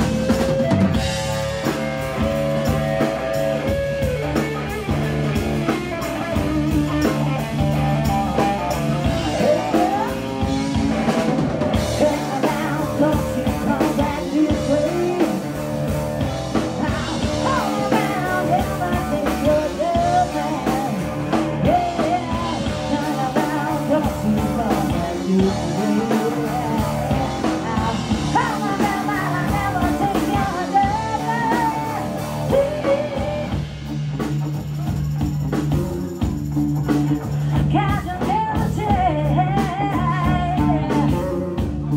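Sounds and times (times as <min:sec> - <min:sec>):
drum kit: 0:00.0 - 0:41.9
electric bass: 0:00.0 - 0:41.9
electric guitar: 0:00.0 - 0:41.9
woman singing: 0:08.3 - 0:33.6, 0:37.5 - 0:41.7.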